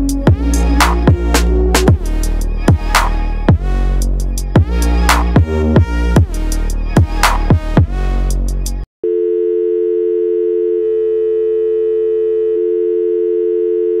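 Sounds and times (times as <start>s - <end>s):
electronic dance music: 0.0s - 8.8s
telephone dial tone: 9.0s - 14.0s.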